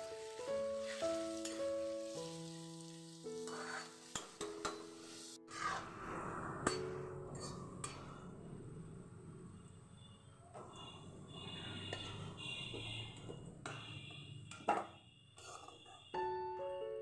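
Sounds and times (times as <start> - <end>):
potato slices sizzling in oil: 0.0 - 5.8
soft background music: 0.0 - 14.2, 16.0 - 17.0
spatula scraping metal pan: 3.4 - 5.9, 15.4 - 15.9.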